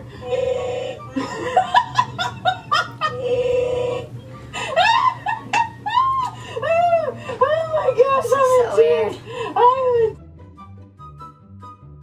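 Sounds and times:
woman laughing hard: 1.0s - 8.0s.

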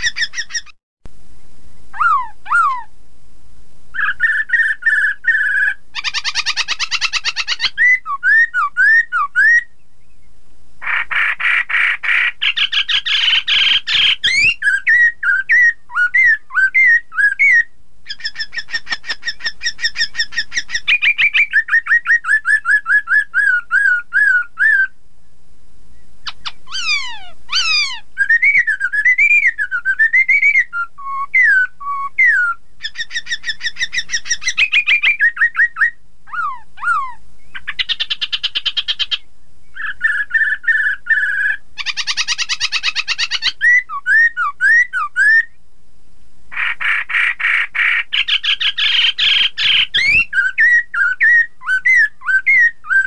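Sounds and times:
bird singing whistles: 0.0s - 0.8s, 1.9s - 2.9s, 4.0s - 11.0s, 12.1s - 25.0s, 25.9s - 45.6s, 46.6s - 53.0s
harsh rasping bird call: 0.0s - 0.8s, 1.9s - 2.9s, 4.0s - 9.7s, 10.8s - 24.9s, 26.3s - 29.6s, 46.5s - 53.0s.

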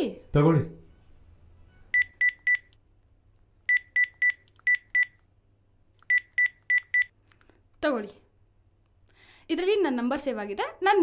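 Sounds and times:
phone keypad beeps: 1.9s - 2.8s, 3.7s - 5.2s, 6.0s - 7.1s.

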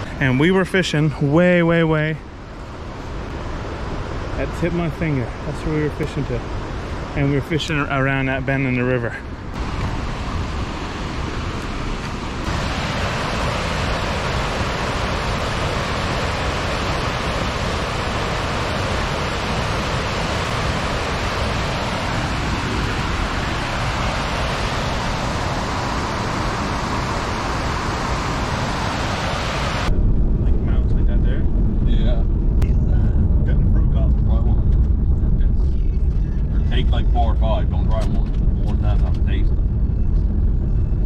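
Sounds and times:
waterfall and rapids rushing: 9.6s - 29.9s.

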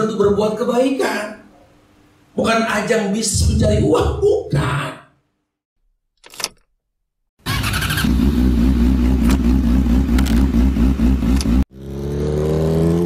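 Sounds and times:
ignition key rattle: 6.2s - 6.7s
engine accelerating: 7.4s - 13.0s
motorcycle engine running: 7.5s - 13.0s.

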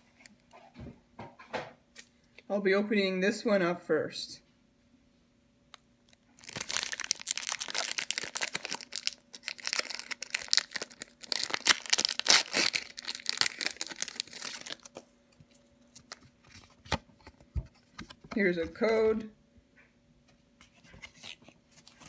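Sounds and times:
foil wrapper crinkling: 6.1s - 15.1s
handling cards: 20.6s - 22.0s.

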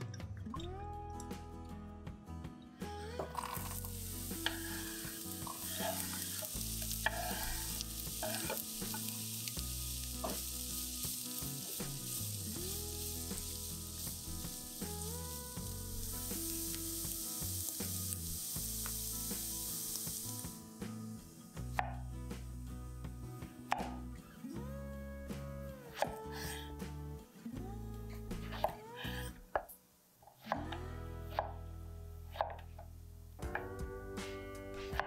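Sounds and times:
vegetables frying in a pan: 3.4s - 22.6s.

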